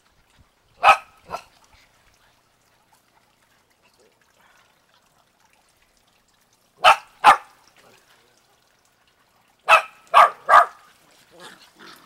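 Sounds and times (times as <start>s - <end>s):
dog barking: 0.8s - 1.5s, 6.8s - 7.5s, 9.6s - 10.8s.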